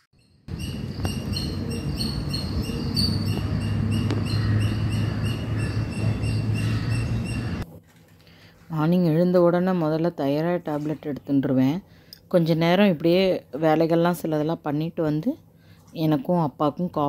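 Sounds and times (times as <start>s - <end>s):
birds chirping: 0.0s - 7.6s
low wind rumble: 0.5s - 7.6s.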